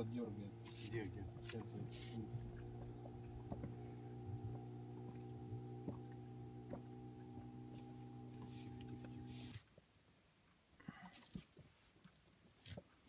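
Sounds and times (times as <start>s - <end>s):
low mechanical hum: 0.0s - 9.6s.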